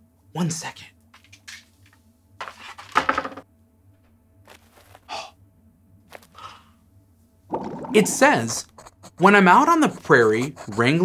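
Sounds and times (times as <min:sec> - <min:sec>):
plastic toy knocking on table: 0:03.0 - 0:03.4.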